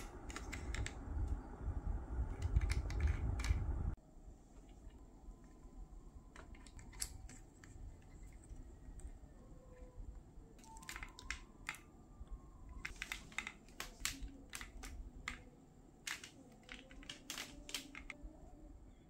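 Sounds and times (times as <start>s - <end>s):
plastic and metal parts clicking: 0.0s - 1.0s, 2.3s - 3.6s, 6.3s - 10.0s, 10.6s - 18.2s.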